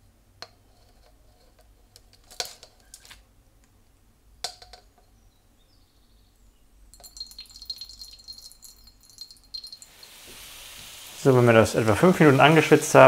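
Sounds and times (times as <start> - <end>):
vegetables sizzling in a pan: 9.8 - 13.0.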